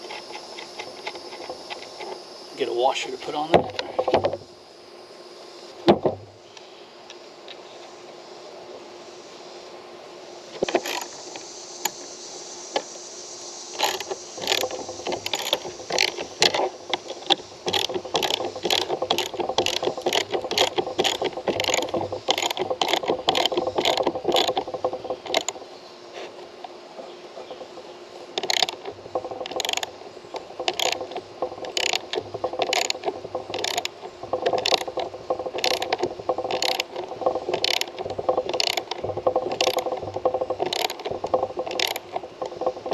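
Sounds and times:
ratchet wrench clicking: 13.8 - 25.6, 28.4 - 42.9.

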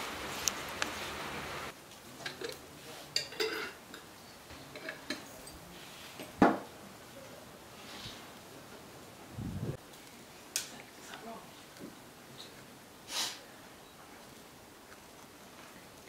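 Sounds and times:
glass jars clinking on table: 2.3 - 4.1.

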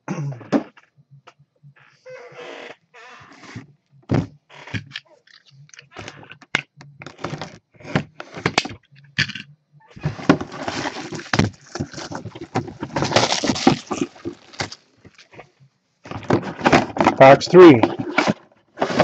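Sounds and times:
plastic shrink wrap crinkling: 10.0 - 15.4.

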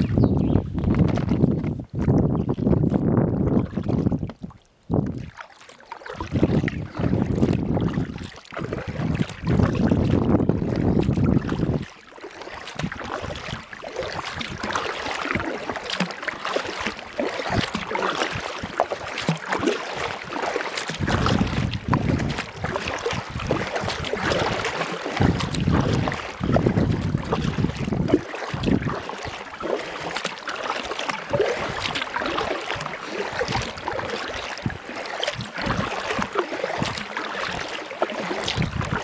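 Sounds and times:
wind buffeting microphone: 0.0 - 5.3, 6.2 - 11.9, 20.0 - 29.4, 31.3 - 37.7, 38.4 - 39.0
paddle splashing water: 0.0 - 39.0.

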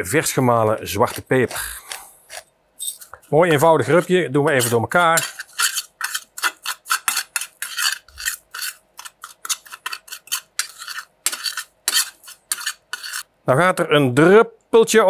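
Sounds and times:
utensil scraping round a bowl: 0.6 - 13.3.

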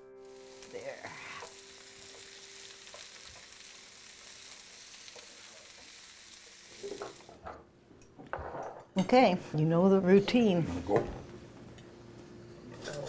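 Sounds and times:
vegetables sizzling in a skillet: 0.0 - 7.4.

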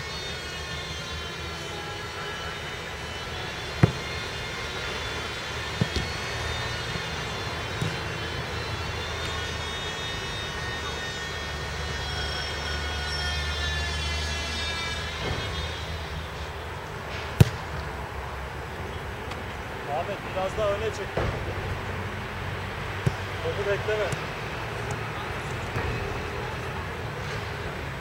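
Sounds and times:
aircraft droning overhead: 0.0 - 28.0
football being kicked: 3.8 - 4.2, 5.8 - 6.2, 7.8 - 8.1, 17.4 - 17.8, 23.0 - 23.3.

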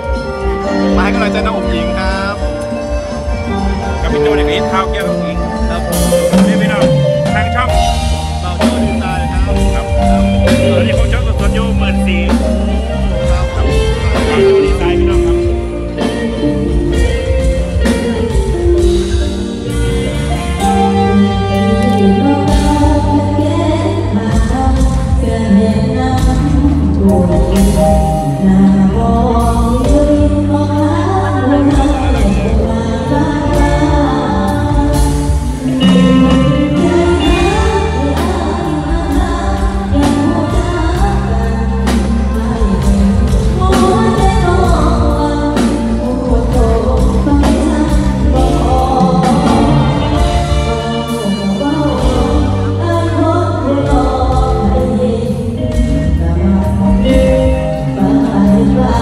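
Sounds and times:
backing music with drums and bass: 0.0 - 59.0
girl singing into microphone: 21.0 - 59.0.

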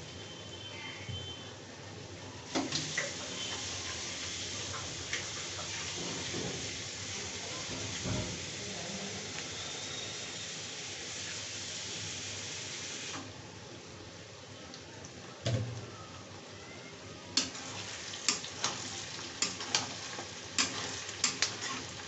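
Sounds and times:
onions sizzling in a pan: 2.4 - 13.4, 16.4 - 22.0.

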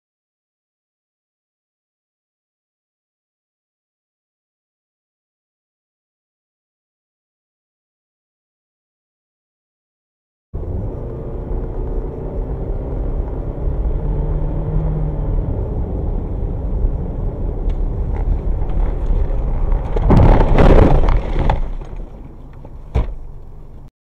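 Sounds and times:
car engine and road noise: 10.6 - 23.9
loud crashing rush of snow: 19.0 - 21.8.

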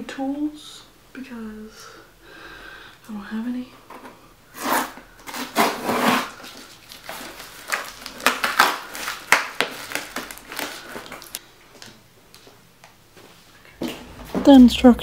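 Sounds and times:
cardboard scraping and rustling: 4.6 - 7.2
tape ripping: 4.6 - 11.4.

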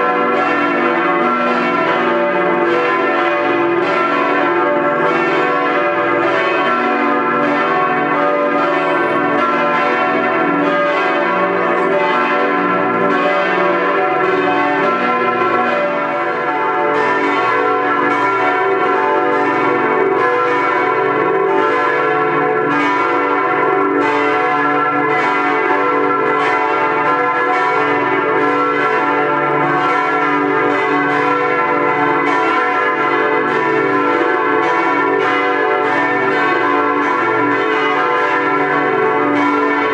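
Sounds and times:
church bells ringing: 0.0 - 39.9.

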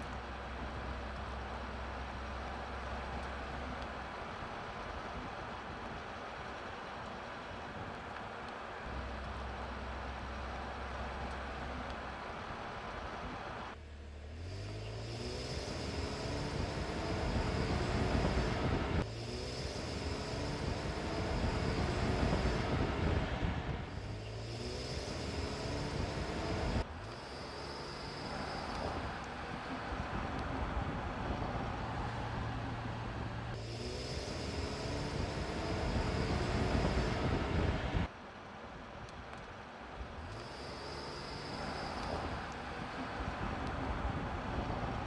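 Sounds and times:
tyre and road noise: 0.0 - 45.0
car engine accelerating: 8.9 - 38.1.

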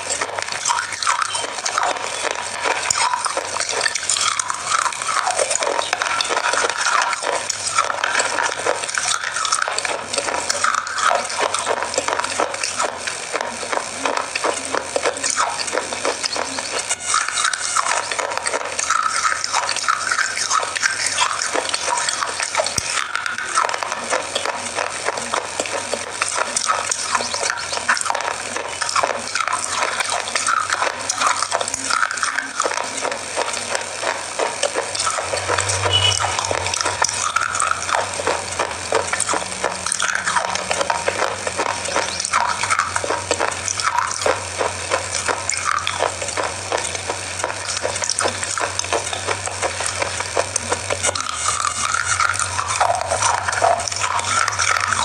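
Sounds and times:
biscuit crunching: 0.0 - 55.0.

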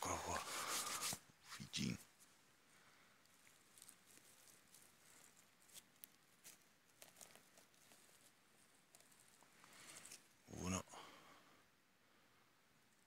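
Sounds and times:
rustling of dry leaf litter: 3.2 - 10.4.

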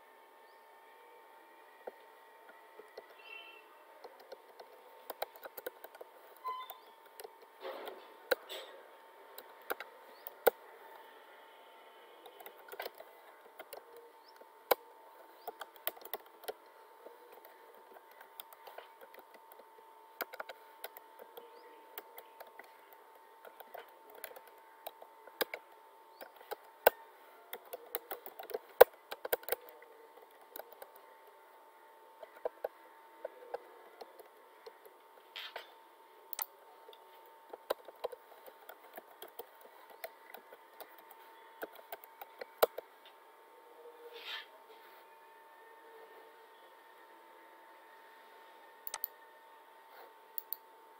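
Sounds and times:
faint steady hum: 0.0 - 50.9
keyboard key clicks: 4.0 - 7.5, 12.2 - 14.8, 20.2 - 31.0, 37.5 - 42.8, 48.9 - 49.1.

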